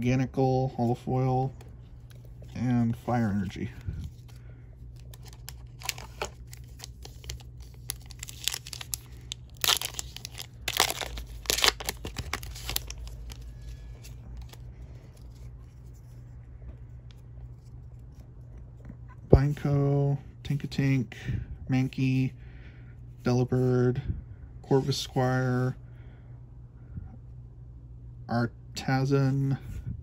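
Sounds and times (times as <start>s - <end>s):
foil wrapper tearing and crinkling: 5.0s - 14.6s.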